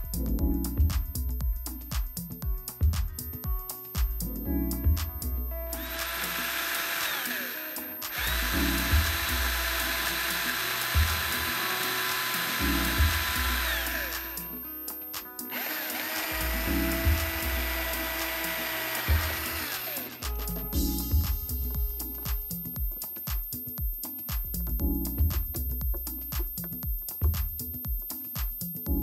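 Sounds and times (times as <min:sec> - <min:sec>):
background music with bass beat: 0:00.0 - 0:29.0
power drill boring: 0:05.8 - 0:14.4, 0:15.5 - 0:20.3.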